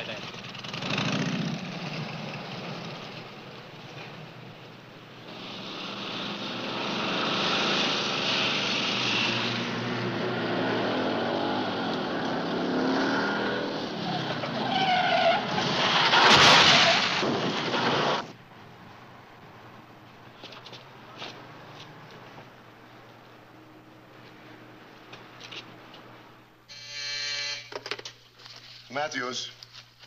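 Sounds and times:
motorcycle engine at speed: 0.2s - 4.3s, 5.2s - 14.0s
tyres screeching: 14.0s - 18.2s
loud crash: 15.4s - 18.3s.

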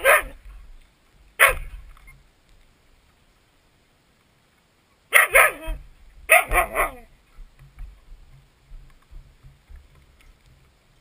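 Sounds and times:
husky barking: 0.0s - 0.4s, 1.4s - 1.8s, 5.1s - 7.1s
soft low thumps: 5.5s - 11.0s.

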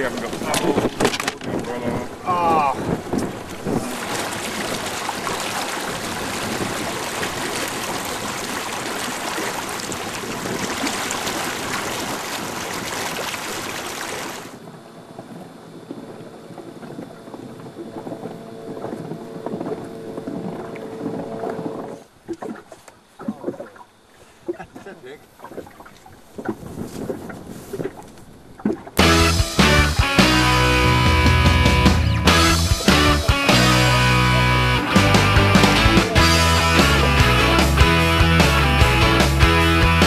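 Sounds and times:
faint steady hum: 0.0s - 28.6s
wind and water rushing past boat: 0.0s - 40.0s.

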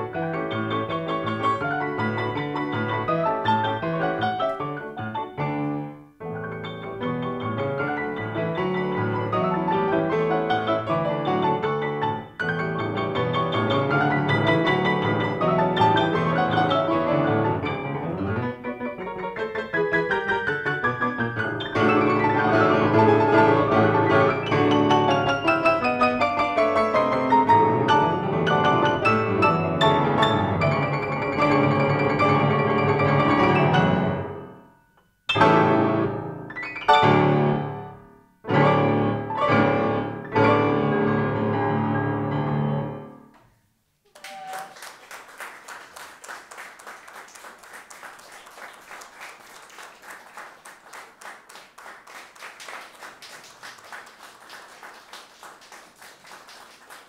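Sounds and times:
grand piano chords: 0.0s - 43.8s
applause: 44.1s - 57.0s.

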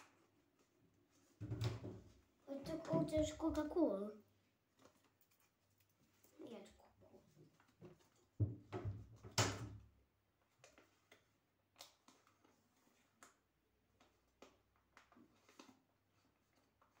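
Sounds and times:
paper rustling and crinkling: 10.4s - 17.0s.

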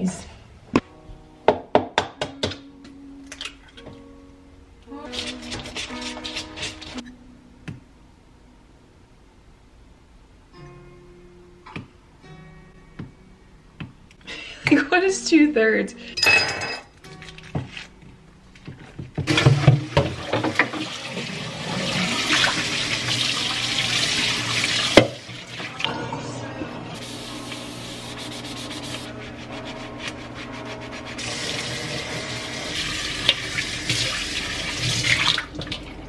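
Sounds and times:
ceramic bowl clinking: 16.2s - 16.9s
tap running into sink: 19.2s - 21.0s, 24.7s - 25.2s.

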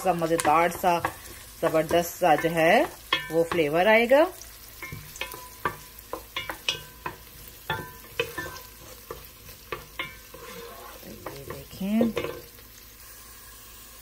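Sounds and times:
wooden spoon scraping pot: 0.0s - 4.0s, 4.7s - 12.7s
onions frying in oil: 0.0s - 14.0s.

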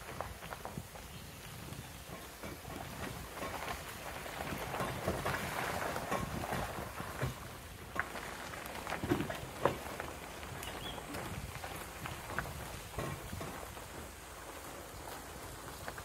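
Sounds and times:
tyre and gravel noise: 0.0s - 16.0s.

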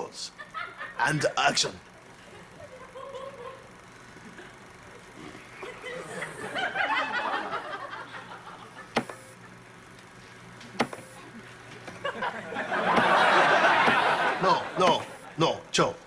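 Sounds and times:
studio audience laughing: 0.4s - 1.2s, 2.0s - 9.9s, 11.8s - 15.4s
button clicks: 9.0s - 9.2s, 10.8s - 11.1s.

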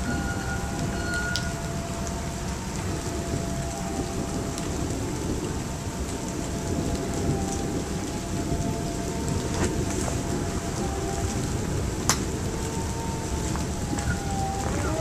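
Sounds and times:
low rumble of thunder: 0.0s - 15.0s
raindrops ticking close by: 0.0s - 15.0s
steady rain: 0.0s - 15.0s.

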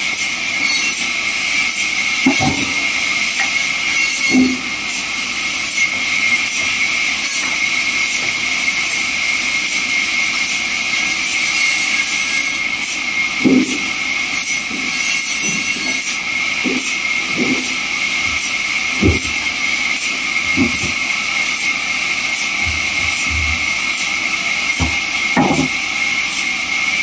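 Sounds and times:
band saw cutting wood: 0.0s - 27.0s
dull knocks of timber: 2.2s - 2.8s, 13.4s - 13.9s, 16.7s - 17.7s, 19.0s - 19.4s, 20.5s - 21.0s, 24.7s - 25.8s.

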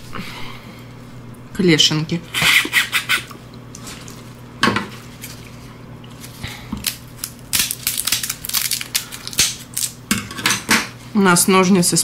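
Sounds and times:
crab shell cracking: 6.8s - 10.0s.

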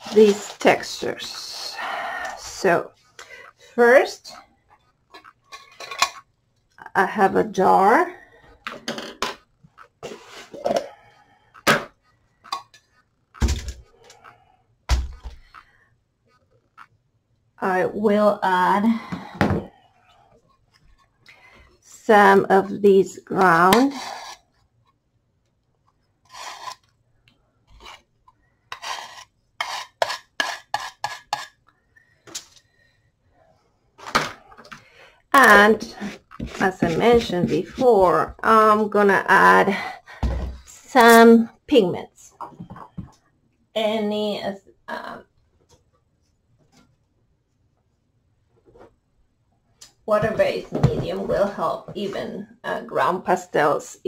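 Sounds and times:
metal knife scraping plastic: 23.7s - 24.6s, 26.2s - 27.0s, 28.7s - 31.6s.

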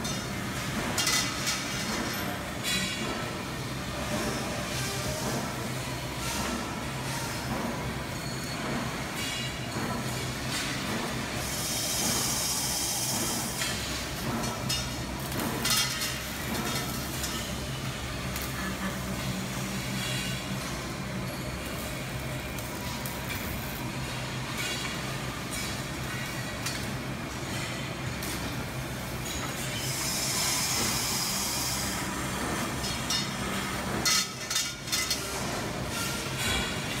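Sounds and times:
machinery humming: 0.0s - 37.0s
hiss: 10.7s - 14.0s, 29.8s - 32.6s.

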